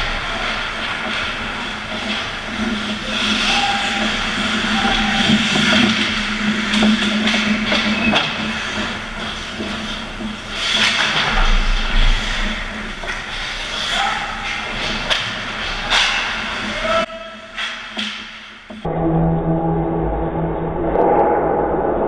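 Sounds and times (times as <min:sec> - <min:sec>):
skates scraping on ice: 0:00.0 - 0:17.0
hockey sticks and puck clacking: 0:00.0 - 0:18.9.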